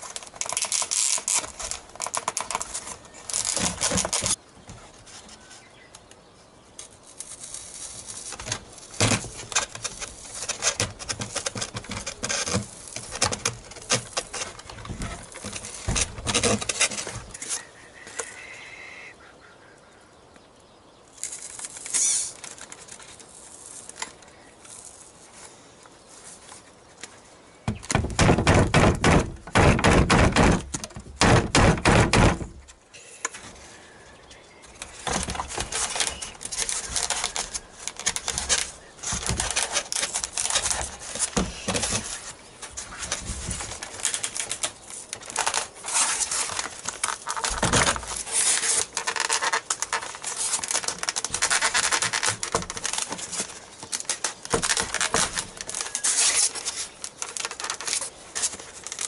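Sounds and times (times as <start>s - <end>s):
foam parts clicking and tapping: 0.0s - 6.2s, 6.8s - 18.4s, 26.4s - 33.6s, 34.6s - 59.0s.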